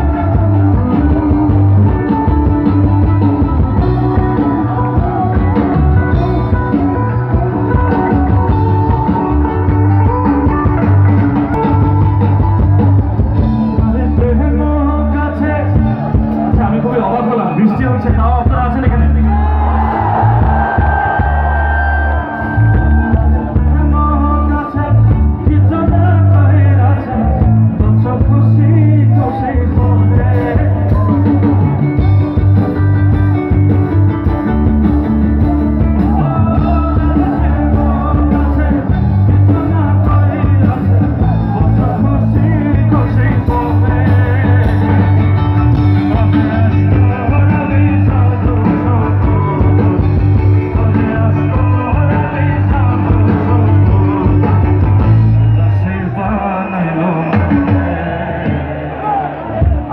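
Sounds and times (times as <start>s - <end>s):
person singing: 0.0s - 16.9s, 19.2s - 32.8s, 35.4s - 59.9s
live rock band playing: 0.0s - 59.9s.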